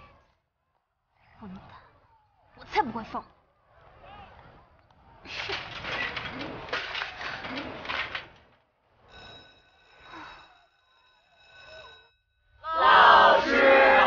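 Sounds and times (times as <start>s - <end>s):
faint bell-like ringing: 8.9s - 13.4s.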